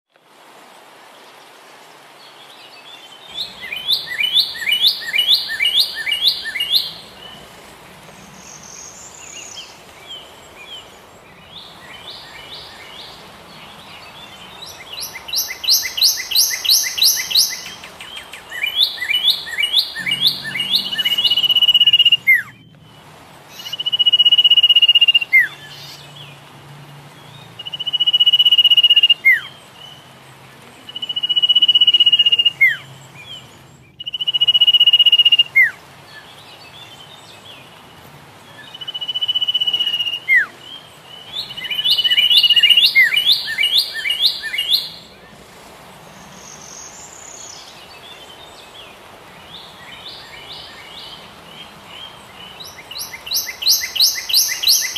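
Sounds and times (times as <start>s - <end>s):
bird chirping rapidly: 3.3s - 7.4s, 8.3s - 22.7s, 41.2s - 45.3s, 49.4s - 54.9s
bird whistles with downward sweep: 18.6s - 22.6s.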